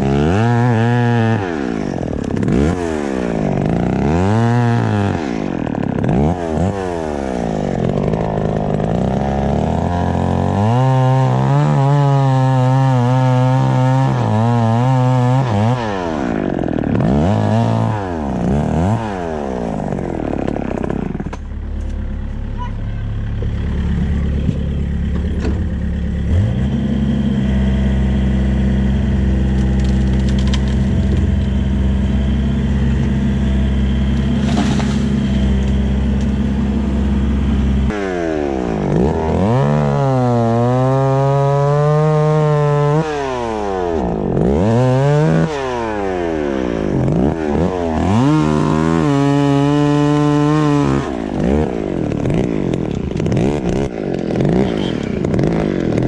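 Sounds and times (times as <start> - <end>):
engine running: 0.0 - 11.8, 15.1 - 56.0
chainsaw revving and cutting wood: 0.0 - 56.0.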